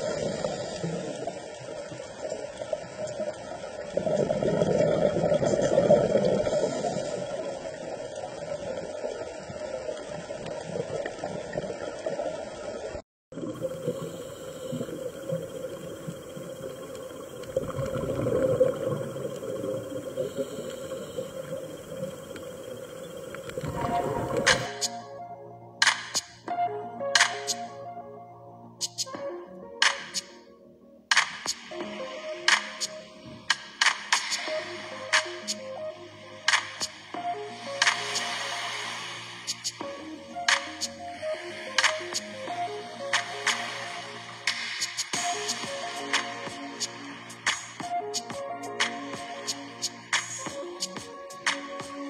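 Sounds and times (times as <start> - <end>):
underwater water wash: 0.0 - 24.9, 36.4 - 52.0.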